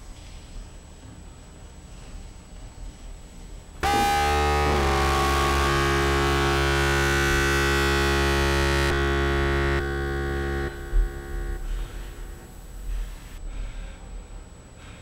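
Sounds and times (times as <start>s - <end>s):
distorted electronic drone chord: 3.8s - 13.4s.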